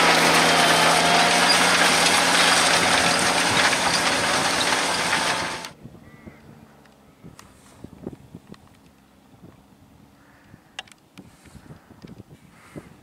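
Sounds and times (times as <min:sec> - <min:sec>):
tractor diesel engine droning: 0:00.0 - 0:05.8.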